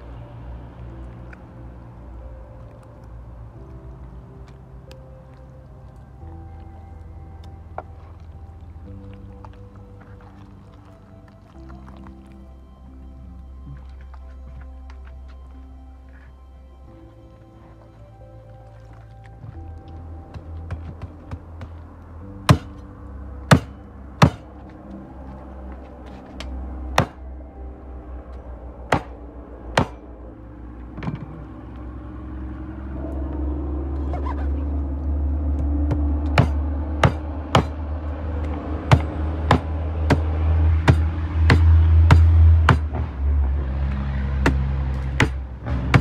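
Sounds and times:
low rumble: 0:00.0 - 0:46.0.

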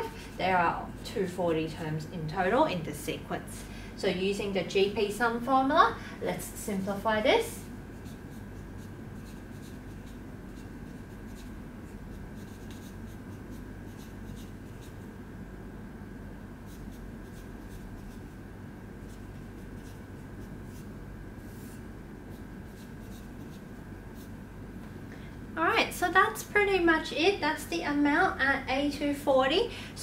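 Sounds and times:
steady low hum: 0:00.0 - 0:30.0
marker writing on whiteboard: 0:12.4 - 0:13.2, 0:21.6 - 0:24.3.

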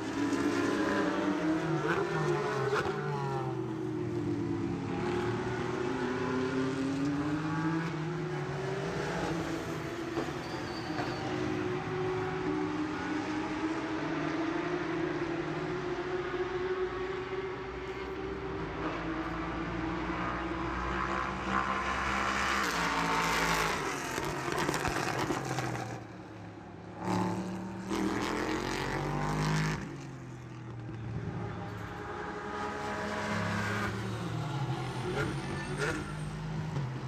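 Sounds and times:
race car engines passing: 0:00.0 - 0:37.0.

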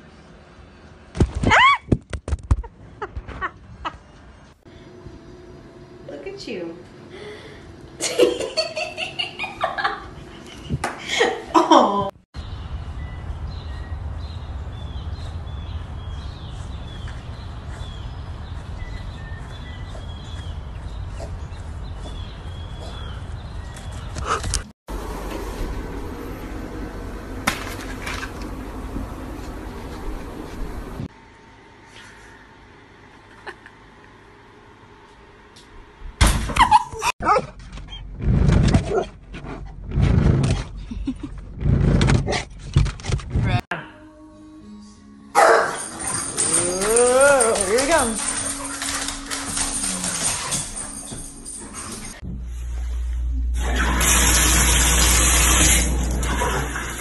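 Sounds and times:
small birds chirping: 0:12.4 - 0:24.5
steady low rumble: 0:24.9 - 0:31.1, 0:52.2 - 0:53.7
dog barking: 0:45.4 - 0:46.0.

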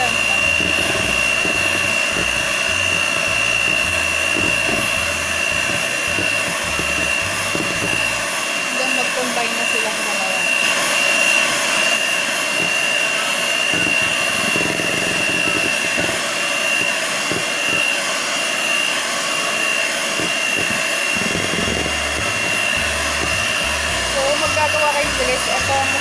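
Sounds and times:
electric hand mixer whining: 0:00.0 - 0:26.0.

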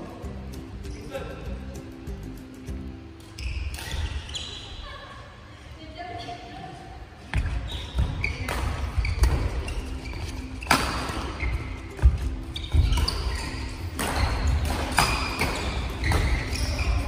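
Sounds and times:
shoes squeaking: 0:03.2 - 0:05.0, 0:07.3 - 0:17.0
racket striking shuttlecock: 0:10.6 - 0:16.7.

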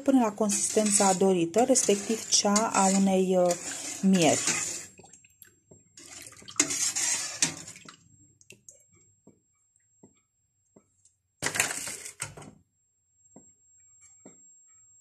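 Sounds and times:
syrup simmering with small pops: 0:04.8 - 0:08.9.

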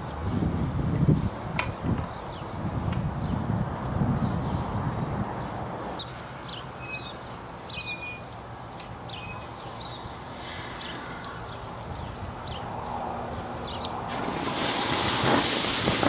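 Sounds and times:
small birds chirping: 0:05.4 - 0:14.0.

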